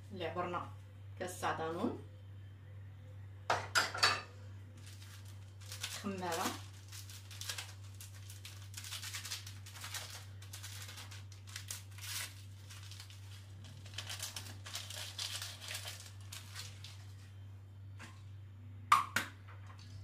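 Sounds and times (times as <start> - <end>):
paper packet rustling and crinkling: 4.8 - 17.4.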